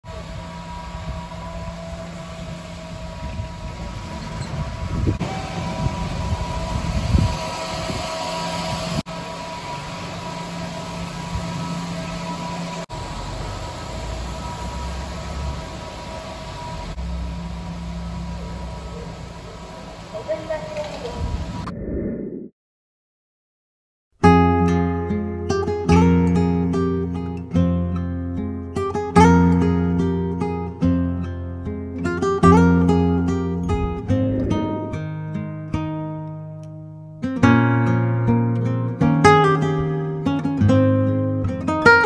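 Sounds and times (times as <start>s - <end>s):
faint steady tones: 0.1s - 21.2s
steady mechanical hum: 0.1s - 21.7s
low rumbles: 21.2s - 22.5s, 33.4s - 36.6s.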